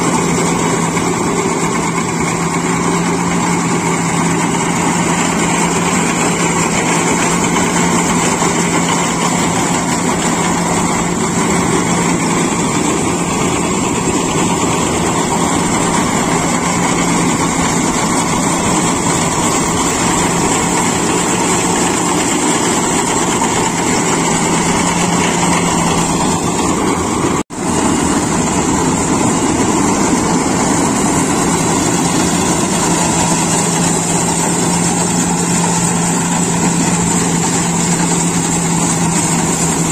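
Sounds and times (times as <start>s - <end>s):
combine harvester engine drone: 0.0s - 39.9s.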